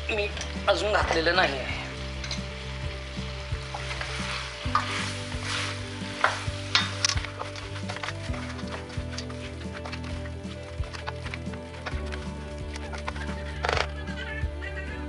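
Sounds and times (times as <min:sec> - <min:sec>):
meat sizzling in a pan: 0:00.0 - 0:13.9
spatula scraping a pan: 0:03.6 - 0:12.0.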